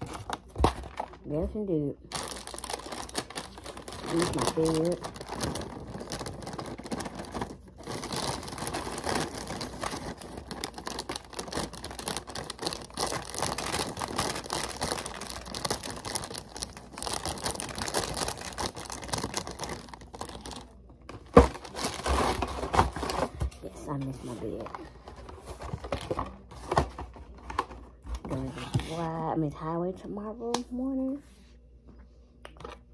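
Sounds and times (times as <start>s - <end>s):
plastic bag crinkling: 0.0s - 1.3s, 2.1s - 23.4s.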